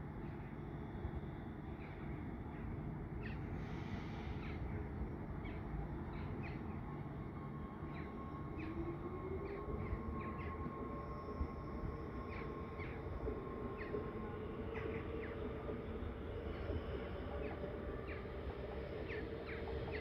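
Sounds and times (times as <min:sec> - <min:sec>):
electric train running noise: 0:00.0 - 0:20.0
thin steady whine: 0:00.0 - 0:20.0.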